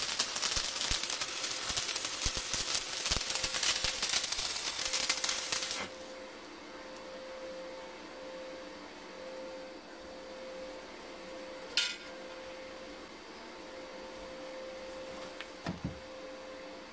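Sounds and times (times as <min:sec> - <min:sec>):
welding arc crackling: 0:00.0 - 0:06.2
faint steady hum: 0:00.0 - 0:16.9.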